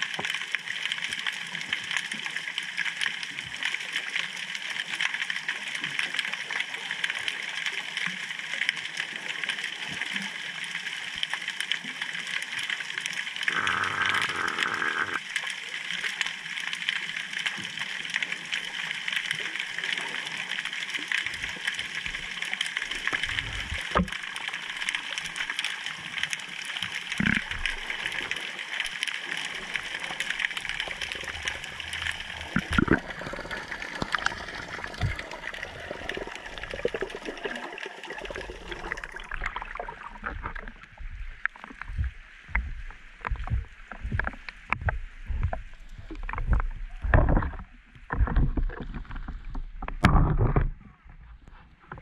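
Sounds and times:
underwater crackling hiss: 0:13.4 - 0:15.5
low rumbling noise: 0:38.4 - 0:51.4.

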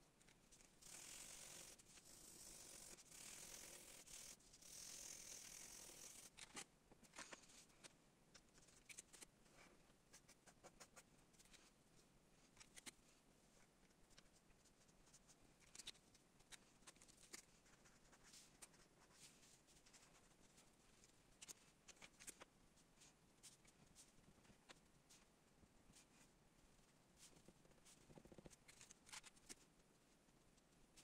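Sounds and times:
marker scratching on paper: 0:10.1 - 0:11.6, 0:14.1 - 0:20.3.

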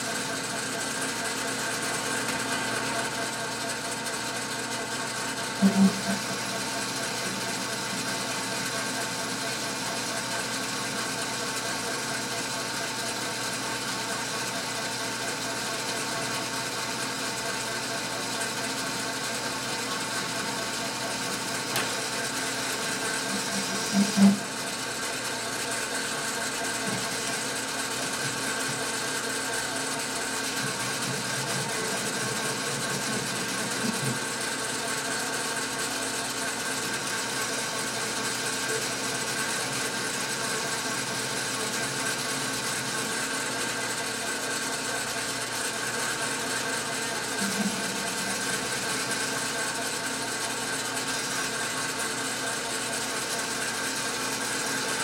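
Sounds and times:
metal lathe gears whirring: 0:00.0 - 0:55.0.

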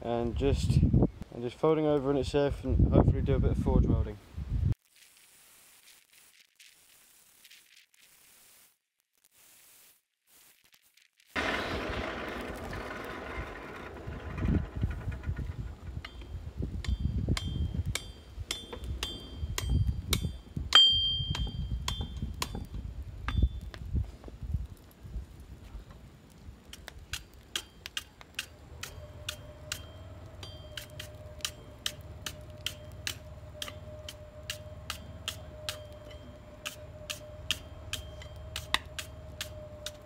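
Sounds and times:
hammer striking steel anvil: 0:16.1 - 0:22.6, 0:28.8 - 0:39.6.

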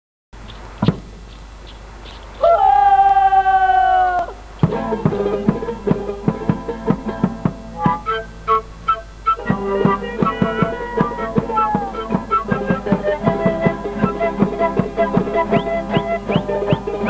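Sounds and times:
bombo drum beat: 0:04.6 - 0:08.2, 0:09.4 - 0:17.0
strummed guitar: 0:04.6 - 0:17.0.

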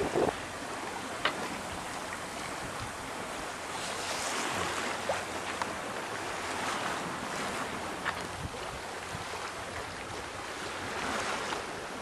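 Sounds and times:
wind noise: 0:00.0 - 0:00.4, 0:08.2 - 0:09.4
water splashing along a hull: 0:00.0 - 0:12.0.

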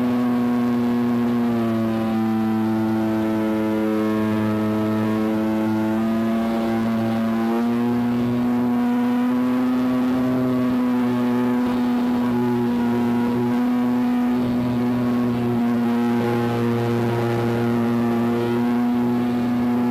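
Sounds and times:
model airplane engine running: 0:00.0 - 0:19.9.

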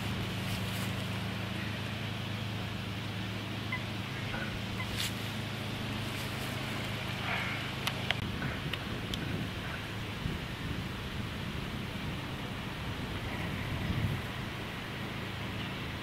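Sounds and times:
coots calling: 0:03.6 - 0:08.1
wind noise: 0:06.0 - 0:16.0.

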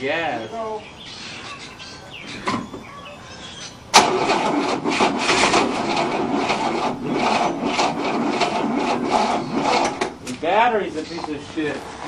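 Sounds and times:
engine cranking without starting: 0:03.9 - 0:10.4.

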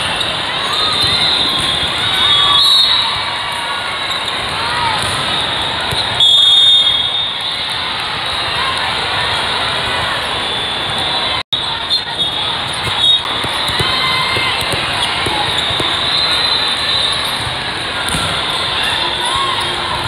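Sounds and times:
many people talking in a hall: 0:00.0 - 0:20.0
ball bouncing on court floor: 0:04.9 - 0:06.2, 0:12.7 - 0:16.2, 0:17.3 - 0:18.5.

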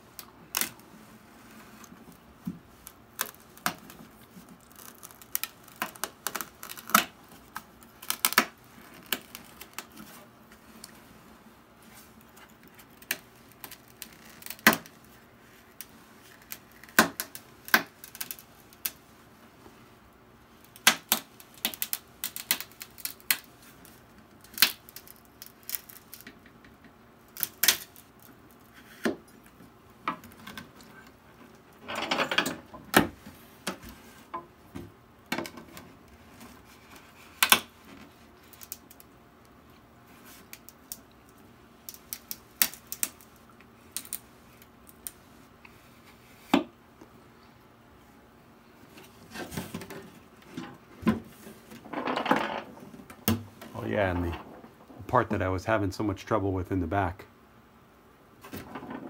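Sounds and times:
glued wood seam cracking: 0:02.8 - 0:10.0, 0:20.6 - 0:29.2, 0:51.6 - 0:55.5.

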